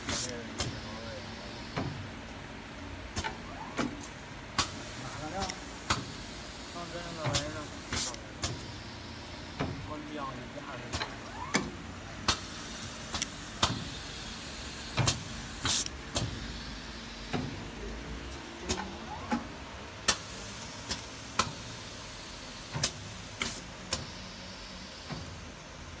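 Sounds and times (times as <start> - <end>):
short air hisses: 7.4 - 8.8.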